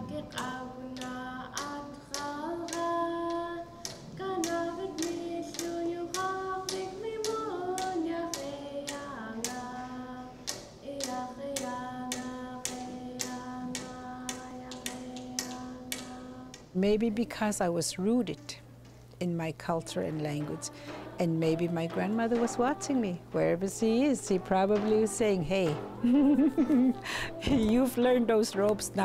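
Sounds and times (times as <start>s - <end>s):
voices singing a chant: 0.0s - 16.7s, 19.7s - 29.0s
frame drums beating: 19.8s - 28.0s.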